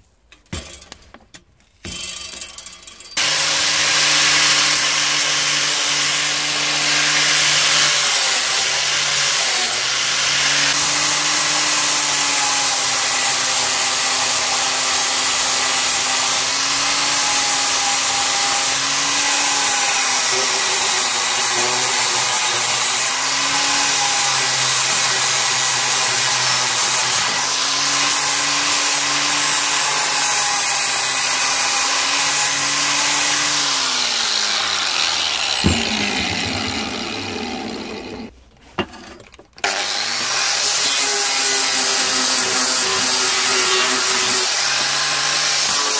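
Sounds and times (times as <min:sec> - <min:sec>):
angle grinder grinding metal: 0:01.9 - 0:45.9.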